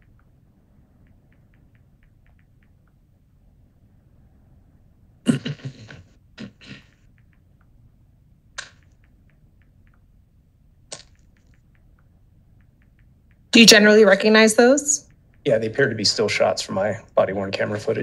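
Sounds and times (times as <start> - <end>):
faint small ticks: 0.0 - 3.3
person coughing: 5.3 - 6.9.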